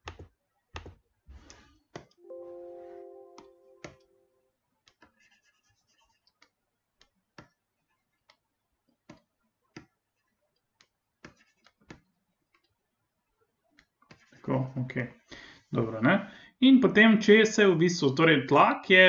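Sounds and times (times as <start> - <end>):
held chord of steady tones: 2.2 - 4.4
computer mouse clicks: 4.8 - 5.3.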